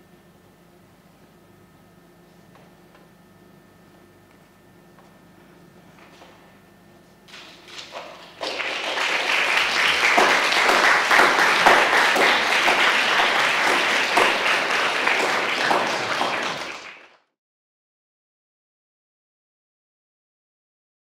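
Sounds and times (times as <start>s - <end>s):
audience applauding: 7.3s - 17.3s.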